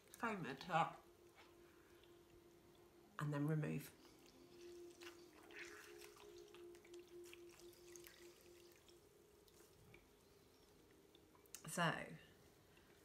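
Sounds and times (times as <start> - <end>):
faint low hum: 0.0 - 13.0
soft splashes and drips: 3.9 - 13.0
sponges swished in water: 4.0 - 10.1.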